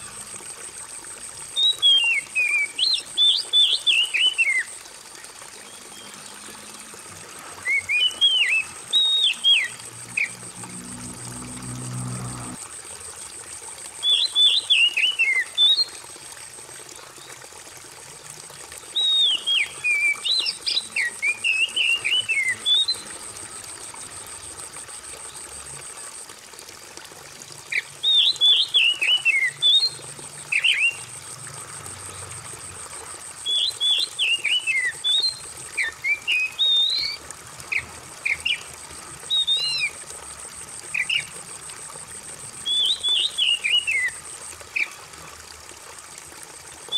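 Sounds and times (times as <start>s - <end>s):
water trickling: 0.0s - 46.9s
bird singing whistled phrases: 1.6s - 4.7s, 7.6s - 9.7s, 14.0s - 15.9s, 19.0s - 23.0s, 30.6s - 31.0s, 33.5s - 37.2s, 39.3s - 39.9s, 42.6s - 44.2s.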